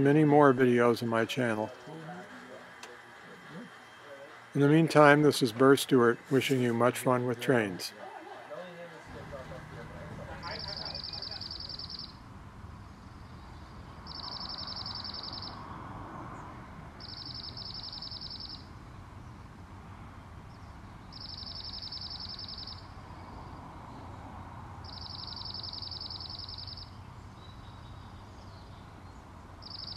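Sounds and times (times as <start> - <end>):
low background noise: 0.0 - 29.9
bird singing high trill: 10.4 - 12.2, 14.0 - 15.6, 17.0 - 18.7, 21.1 - 22.9, 24.8 - 28.8, 29.6 - 29.9.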